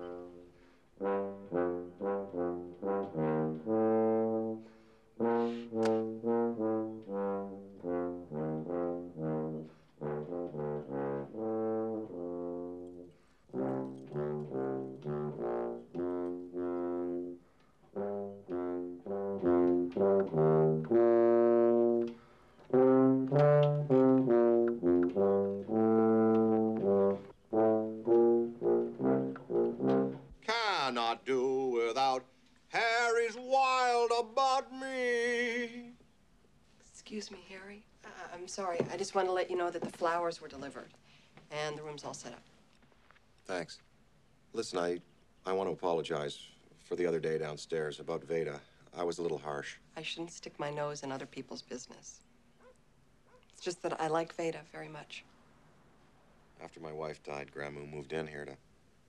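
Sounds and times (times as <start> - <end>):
tuba melody: 0.0 - 30.4.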